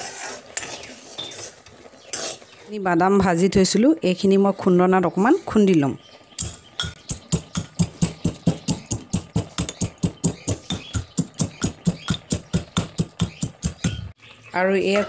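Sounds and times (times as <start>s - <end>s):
pestle pounding in steel mortar: 6.4s - 14.1s.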